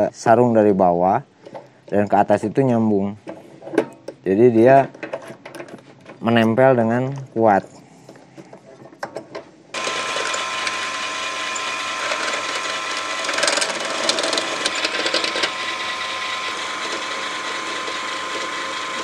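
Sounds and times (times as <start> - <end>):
drill press boring into wood: 9.8 - 19.0.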